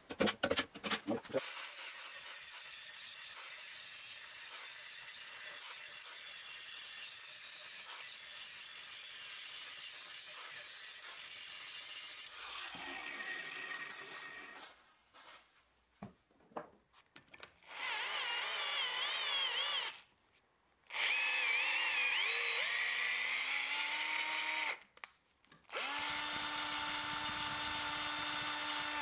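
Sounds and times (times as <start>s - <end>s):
angle grinder cutting steel: 1.4s - 14.6s.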